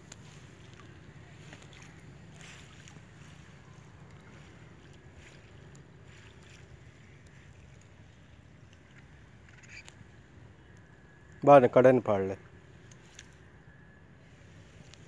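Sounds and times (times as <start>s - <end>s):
net swishing through water: 0.1s - 7.9s.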